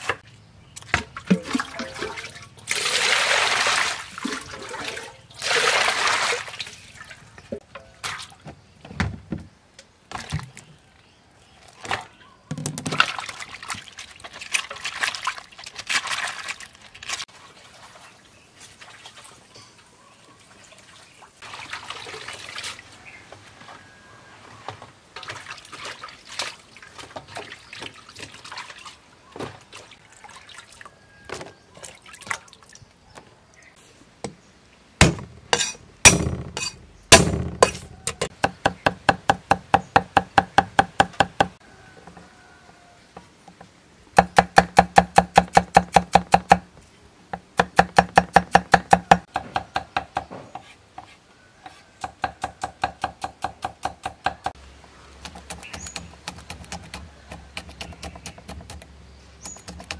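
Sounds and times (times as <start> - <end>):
cleaver chopping on wooden block: 35.0 - 41.6, 44.2 - 46.7, 47.4 - 50.7.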